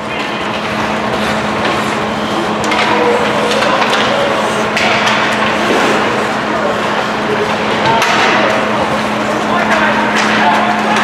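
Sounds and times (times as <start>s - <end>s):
low rink hum: 0.0s - 11.0s
sticks and puck clacking: 2.6s - 6.0s, 9.6s - 11.0s.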